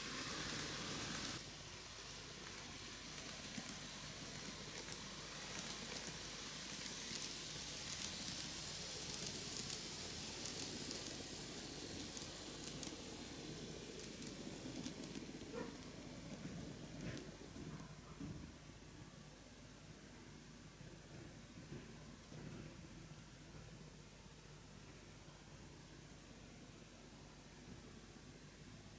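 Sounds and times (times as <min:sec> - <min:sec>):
model train motor hiss: 0:00.0 - 0:17.4.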